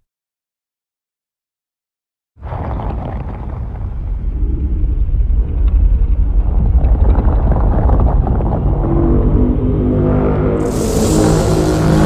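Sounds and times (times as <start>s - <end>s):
deep rumble with crackles: 2.4s - 12.0s
pitched droning tone: 8.8s - 12.0s.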